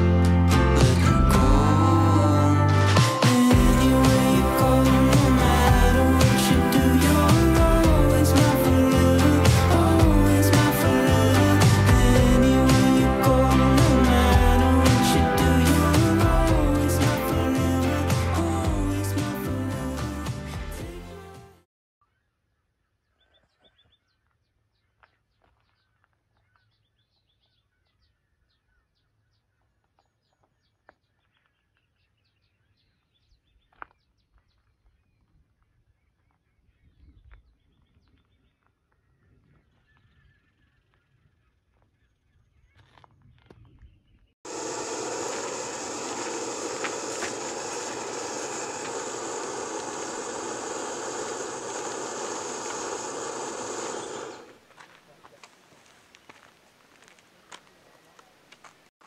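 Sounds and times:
small birds chirping: 0:42.0 - 0:54.6
stove burner hissing: 0:44.5 - 0:54.6.

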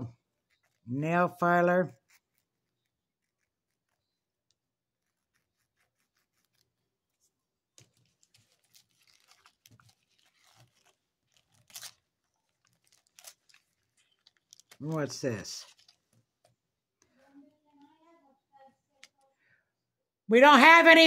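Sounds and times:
packaging rustling and tearing: 0:07.8 - 0:16.4.

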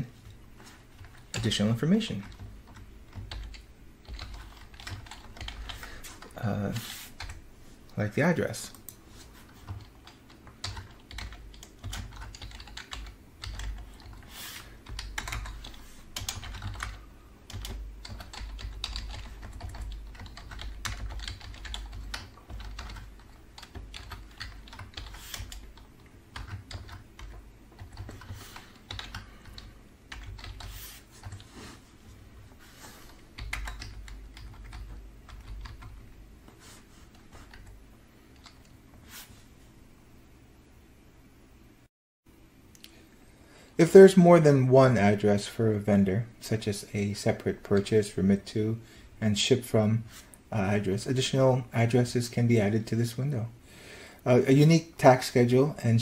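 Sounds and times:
typing on computer keyboard: 0:02.2 - 0:06.3, 0:09.5 - 0:14.2, 0:14.8 - 0:31.4, 0:33.4 - 0:36.0.

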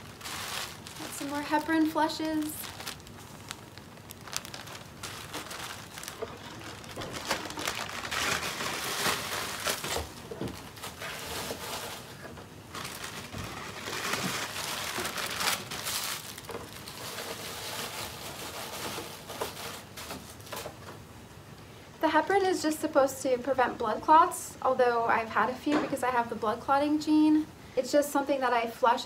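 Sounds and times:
plastic bag crinkling: 0:00.0 - 0:20.7.

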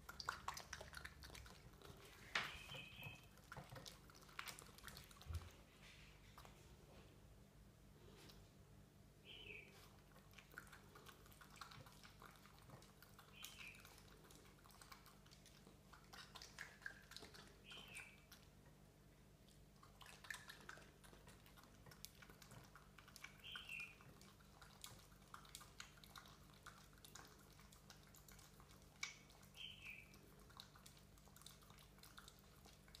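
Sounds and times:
raccoon eating wet clicking: 0:00.0 - 0:06.8, 0:09.7 - 0:33.0
high falling chirp: 0:02.4 - 0:03.2.

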